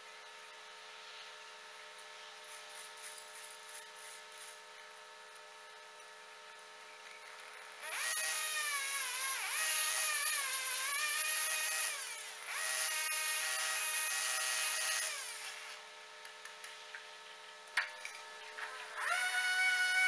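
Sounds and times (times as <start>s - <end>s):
saw engine revving: 7.8s - 15.6s, 19.0s - 20.0s.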